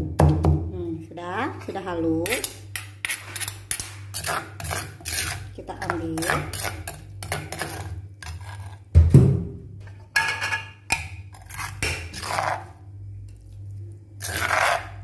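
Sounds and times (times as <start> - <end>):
metal spoon scraping stone mortar: 1.6 - 8.8, 10.0 - 12.8, 14.2 - 15.0.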